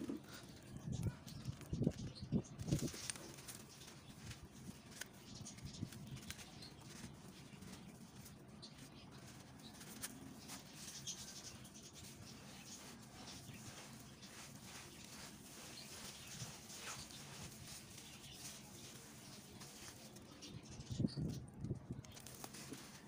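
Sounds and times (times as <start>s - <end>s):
small crackles of breaking grit: 0.0s - 20.6s, 21.2s - 23.0s
wet gritty crunching: 9.2s - 20.2s.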